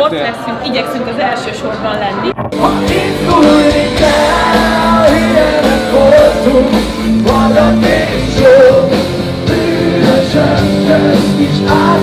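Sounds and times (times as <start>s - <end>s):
rock band playing live: 2.5s - 12.0s
person singing: 2.6s - 12.0s.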